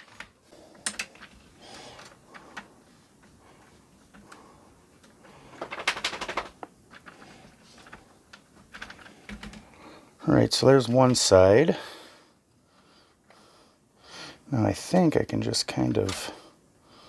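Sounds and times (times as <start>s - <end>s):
plastic clicks and rattles: 0.0s - 3.4s, 5.0s - 9.7s.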